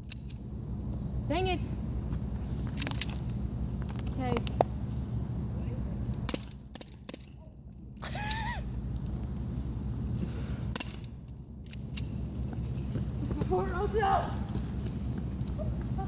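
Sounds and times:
bb guns popping: 6.2s - 7.4s, 10.7s - 12.1s.

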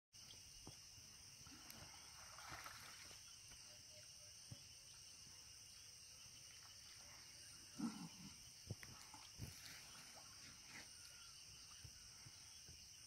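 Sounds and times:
faint insect drone: 0.2s - 13.0s.

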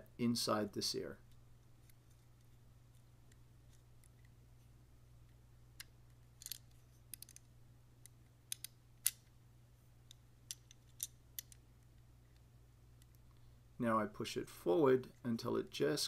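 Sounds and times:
low steady hum: 0.0s - 16.0s
small metallic clicks: 5.8s - 9.3s, 10.0s - 13.4s.

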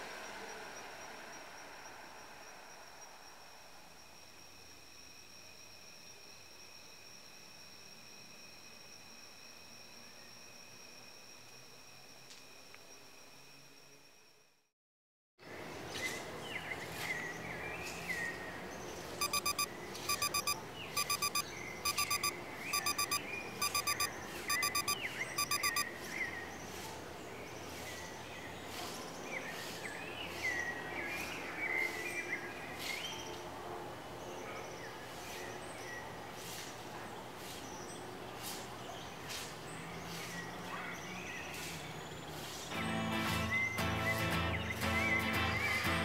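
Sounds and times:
birds chirping: 15.6s - 33.4s, 37.2s - 46.0s
digital alarm beeping: 19.2s - 25.9s.

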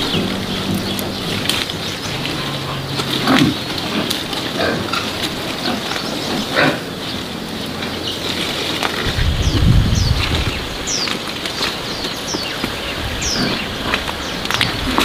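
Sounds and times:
low rumble: 0.0s - 12.0s
steady low hum: 0.0s - 15.0s.

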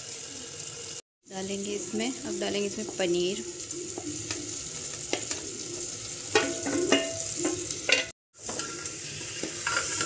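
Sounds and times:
vegetables sizzling: 0.0s - 10.0s
steel ladle stirring and scraping: 3.9s - 10.0s
clinks against metal: 6.2s - 8.1s.

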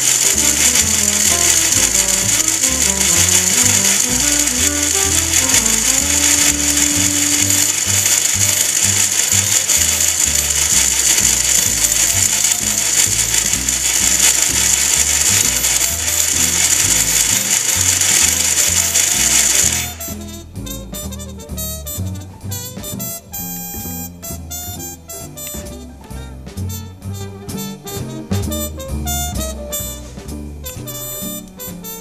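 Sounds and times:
background music with steady beat: 20.0s - 32.0s.

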